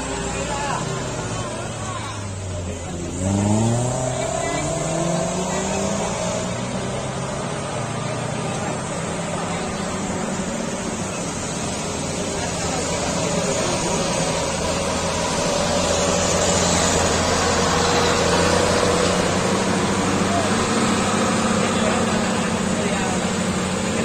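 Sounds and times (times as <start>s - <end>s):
bus diesel engine droning: 0.0s - 24.0s
motorcycle engines passing: 0.0s - 24.0s.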